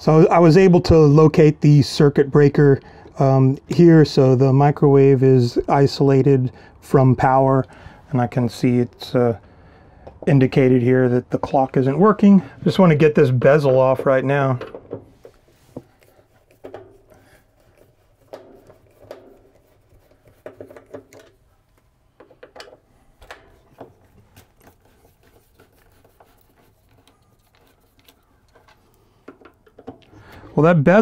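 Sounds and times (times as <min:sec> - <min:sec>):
screwdriver scraping and prying: 0:13.4 - 0:30.2.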